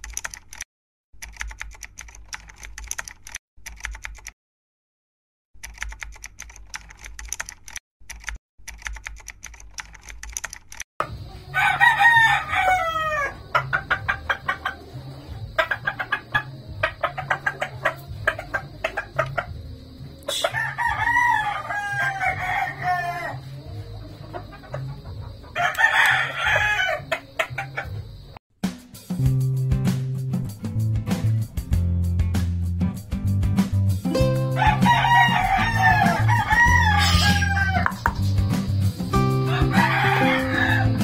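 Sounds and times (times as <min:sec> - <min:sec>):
keyboard typing clicks: 0:00.0 - 0:04.4, 0:05.6 - 0:10.8
rooster crowing: 0:11.4 - 0:14.8, 0:20.3 - 0:23.8, 0:24.5 - 0:27.9, 0:34.5 - 0:38.0, 0:39.3 - 0:41.0.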